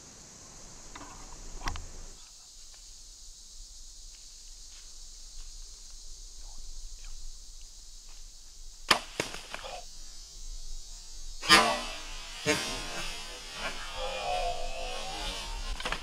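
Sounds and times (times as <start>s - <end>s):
high hiss of insects: 0.0s - 16.0s
arrow striking with sharp crack: 8.8s - 9.8s, 11.4s - 12.1s.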